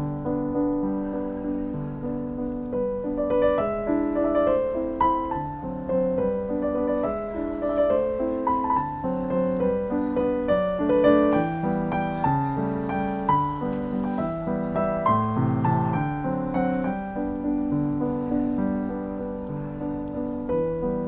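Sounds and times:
piano music: 0.0s - 21.0s.

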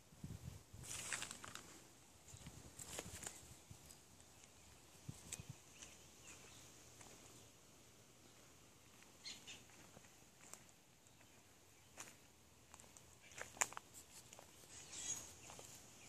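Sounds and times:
footsteps on woodland path: 0.8s - 4.5s, 5.1s - 7.6s, 8.2s - 16.0s
twigs and leaves crackling: 0.8s - 4.6s, 12.0s - 16.0s.

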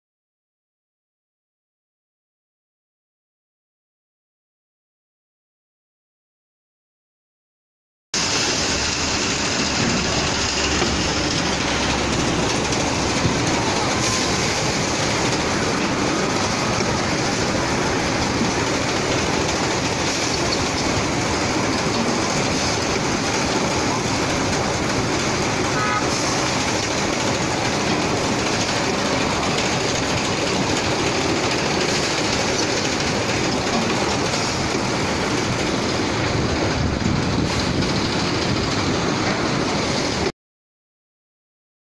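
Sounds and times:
grain machinery clattering rumble: 8.2s - 40.3s.

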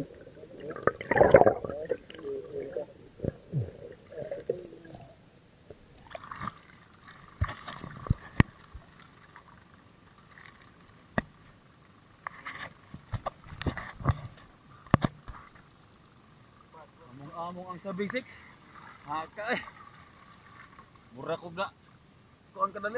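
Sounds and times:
underwater gurgle: 0.0s - 11.2s.

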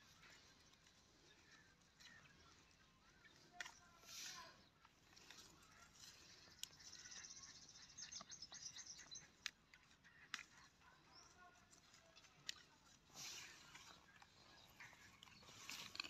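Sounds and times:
chilli stems snapping: 3.3s - 3.9s, 9.2s - 10.8s, 12.2s - 13.3s, 15.1s - 16.0s
bird chirping: 5.1s - 16.0s.

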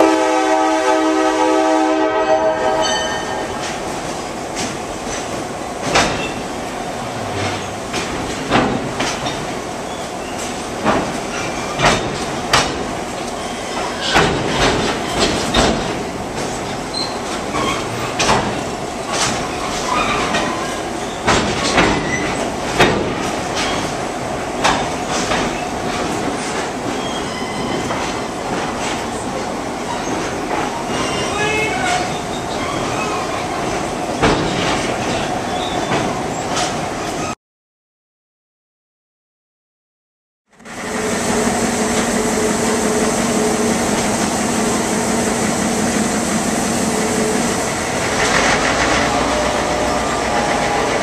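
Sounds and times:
locomotive air horn: 0.0s - 3.5s
train rumbling: 0.0s - 37.4s, 40.6s - 51.0s
wheels clacking over rail joints: 7.1s - 36.8s, 47.6s - 51.0s.

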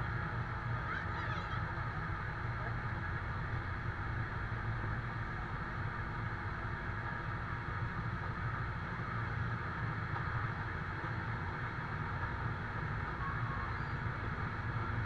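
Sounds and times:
diesel engine running: 0.0s - 15.0s.

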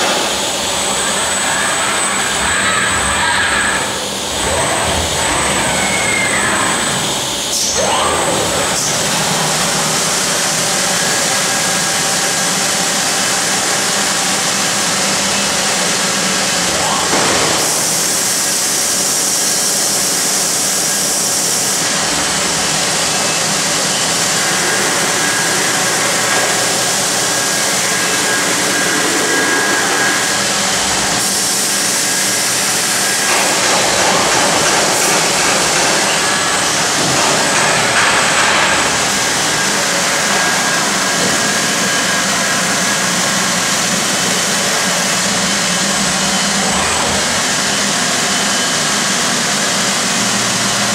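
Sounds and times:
grinder on metal sheet: 19.8s - 48.9s.

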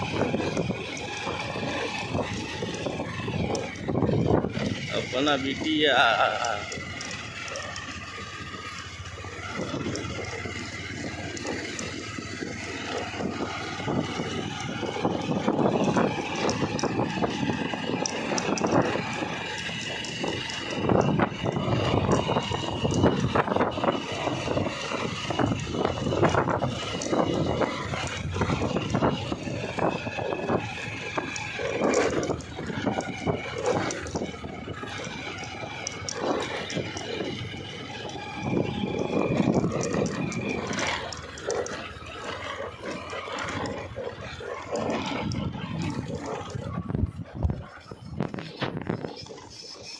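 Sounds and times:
motorcycle engine: 0.0s - 49.9s
rattles and knocks over bumps: 0.0s - 49.9s.

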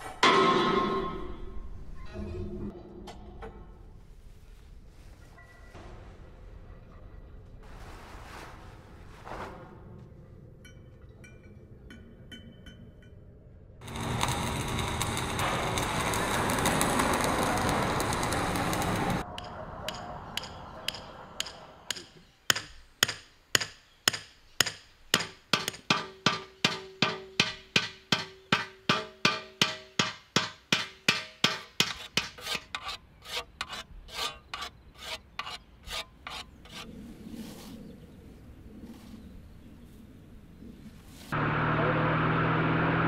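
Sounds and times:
hammer striking metal blade: 0.0s - 1.6s, 19.4s - 32.6s
metalworking rushing noise: 13.8s - 19.3s.

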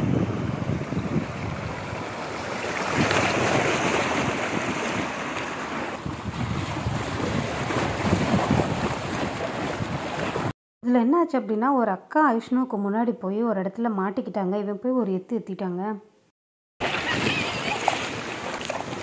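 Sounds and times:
wind on microphone: 0.0s - 5.0s, 5.9s - 10.5s
water rushing and splashing: 0.0s - 10.5s, 16.8s - 19.0s.

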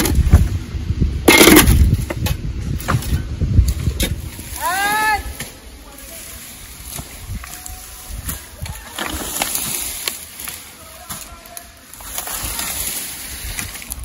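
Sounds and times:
wind buffeting microphone: 0.0s - 5.4s, 6.5s - 10.0s
rustling foliage: 0.0s - 14.0s.

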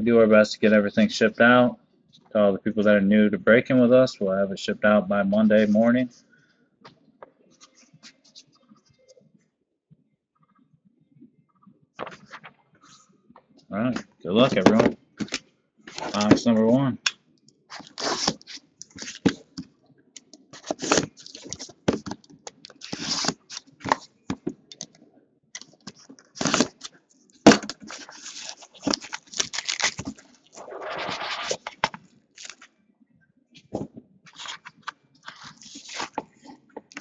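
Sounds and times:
cellophane crinkling and tearing: 17.7s - 19.5s, 20.6s - 24.1s, 25.6s - 32.7s, 34.3s - 37.0s.

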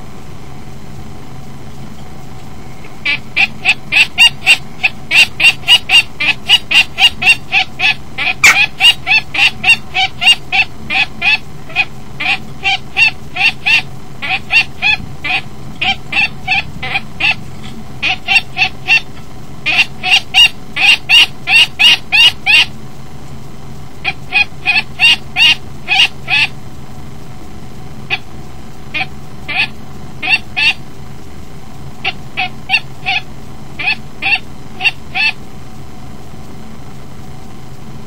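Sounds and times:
kestrel alarm calls: 2.8s - 22.8s, 24.0s - 26.6s, 28.0s - 30.8s, 32.0s - 35.5s.

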